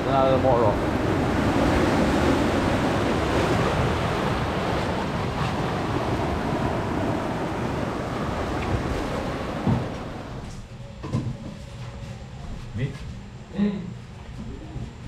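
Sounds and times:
surf washing over rocks: 0:00.0 - 0:10.5.

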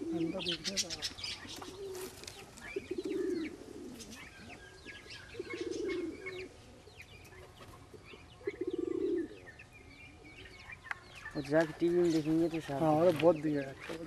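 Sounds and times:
pigeon cooing: 0:00.0 - 0:10.6.

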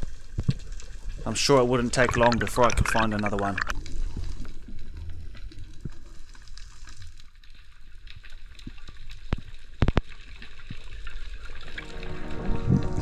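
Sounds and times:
underwater rushing wash: 0:11.3 - 0:13.0.

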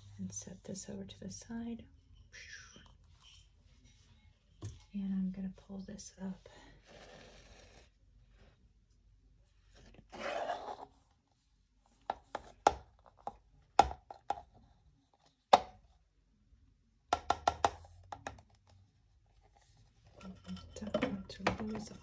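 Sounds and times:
plastic cup scraping on tile: 0:06.8 - 0:08.5, 0:09.9 - 0:11.0.

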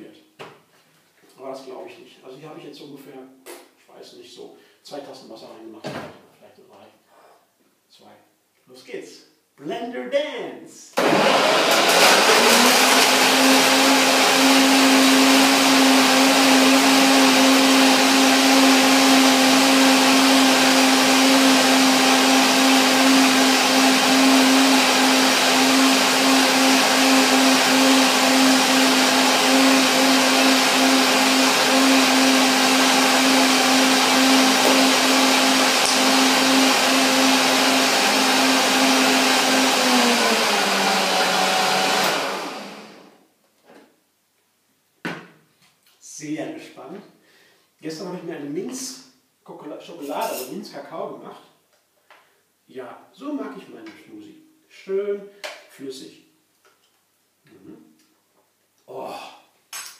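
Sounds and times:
blender motor whining: 0:11.0 - 0:43.2.

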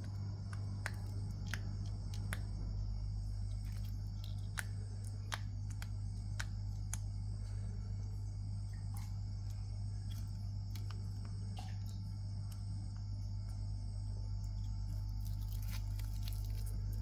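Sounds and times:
monkey crunching insect: 0:00.0 - 0:02.7, 0:03.4 - 0:07.1, 0:14.4 - 0:17.0
steady low hum: 0:00.0 - 0:17.0.

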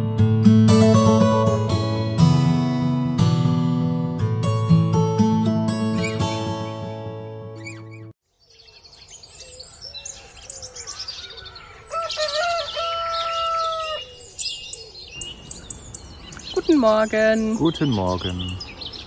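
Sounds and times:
guitar music: 0:00.0 - 0:08.1
small birds chirping: 0:07.5 - 0:19.0.

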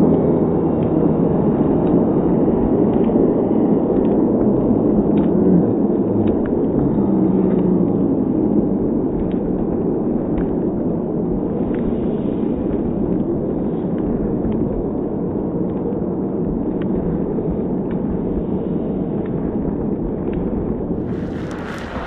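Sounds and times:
slowed stadium crowd rumble: 0:20.9 - 0:22.0.

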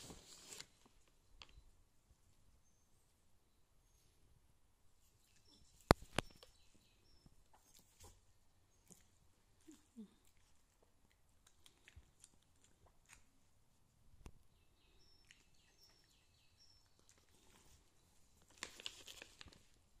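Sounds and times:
plastic pouch crinkling: 0:18.4 - 0:19.8.

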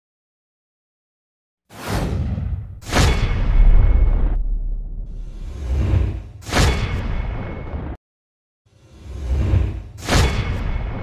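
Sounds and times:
low rumble: 0:03.4 - 0:05.6.

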